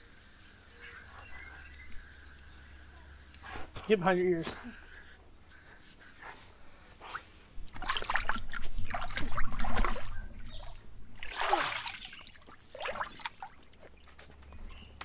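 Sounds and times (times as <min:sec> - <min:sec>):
water splashing in paddling pool: 0:07.7 - 0:14.0.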